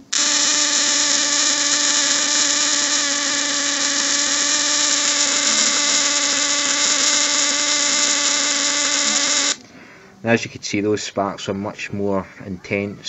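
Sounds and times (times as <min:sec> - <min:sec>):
high-voltage sparks crackling: 0:00.0 - 0:09.6
relay buzzing: 0:00.0 - 0:09.6.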